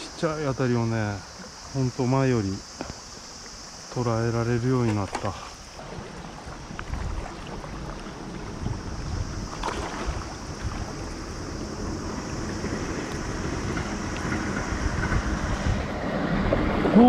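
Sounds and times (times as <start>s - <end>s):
river current rushing: 0.0s - 17.0s
wind buffeting microphone: 5.8s - 17.0s.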